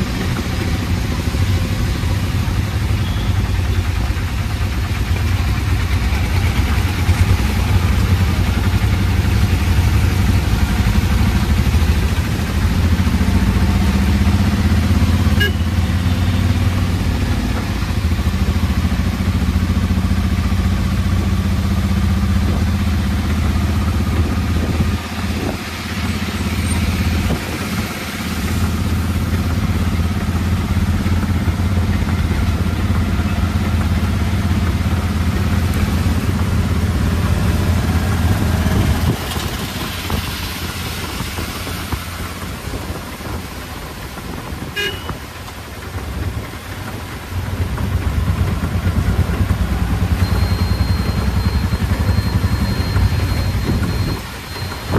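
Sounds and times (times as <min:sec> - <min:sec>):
auto-rickshaw engine running: 0:00.0 - 0:54.9
wet road spray: 0:00.0 - 0:54.9
short horn toot: 0:15.3 - 0:15.7, 0:44.8 - 0:45.2.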